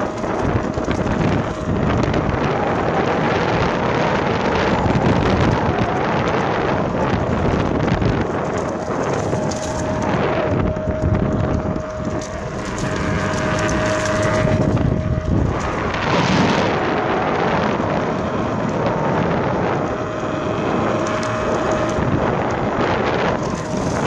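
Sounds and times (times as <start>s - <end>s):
skateboard wheels rolling: 0.0s - 24.0s
steady motor whine: 0.0s - 24.0s
wind buffeting microphone: 0.0s - 24.0s.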